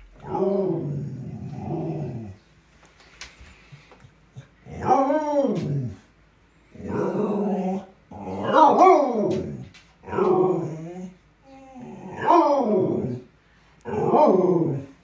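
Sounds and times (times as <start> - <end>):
dog howling: 0.0 - 2.4, 6.9 - 13.2.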